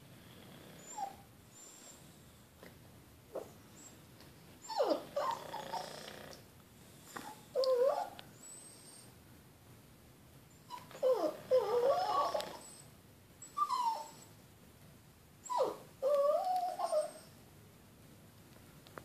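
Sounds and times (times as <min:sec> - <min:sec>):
dog whining: 0:00.7 - 0:02.0, 0:03.3 - 0:04.0, 0:04.6 - 0:06.4, 0:07.2 - 0:09.2, 0:10.6 - 0:14.4, 0:15.4 - 0:17.4.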